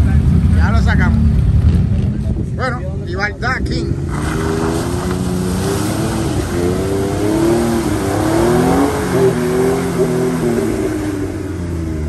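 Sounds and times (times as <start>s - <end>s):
engine revving hard: 3.9s - 11.8s
tyres splashing through mud: 4.0s - 11.3s.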